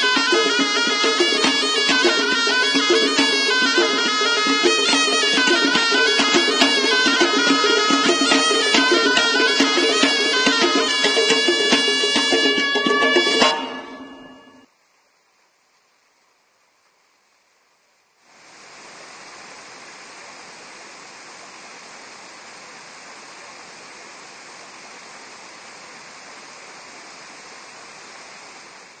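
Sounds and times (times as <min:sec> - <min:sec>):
fountain jet splashing: 0:00.0 - 0:14.1.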